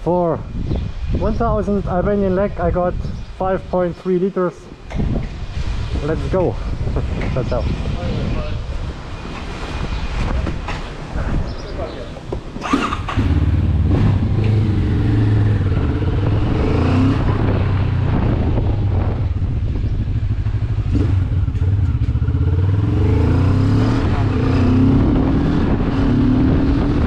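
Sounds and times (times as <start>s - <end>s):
motorcycle engine accelerating: 12.6s - 27.0s.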